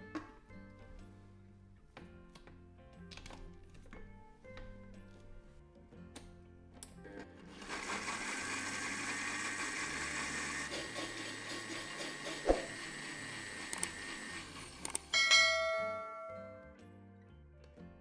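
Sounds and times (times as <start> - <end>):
blender motor whirring: 7.5 - 15.1.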